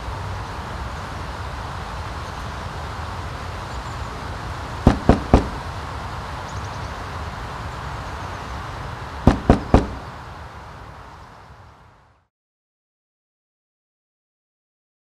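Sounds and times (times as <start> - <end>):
steady background hum: 0.9 - 7.4, 9.2 - 10.4
knocks on a door: 4.9 - 5.6, 9.3 - 10.1.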